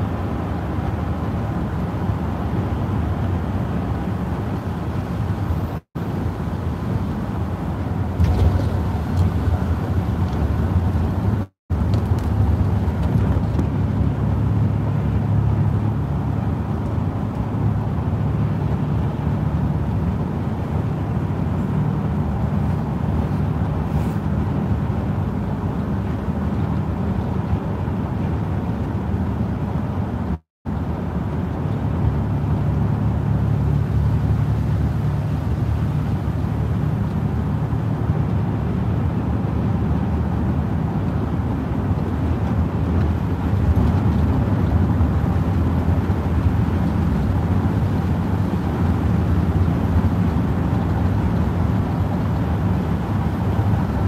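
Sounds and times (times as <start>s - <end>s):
engine and road drone: 0.0s - 54.0s
tyres hissing on wet road: 23.8s - 24.3s.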